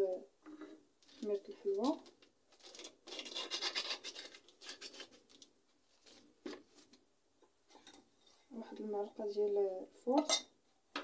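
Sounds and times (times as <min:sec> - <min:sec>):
faint scratches: 0:00.5 - 0:06.9
paper sachet crinkling: 0:01.0 - 0:06.9.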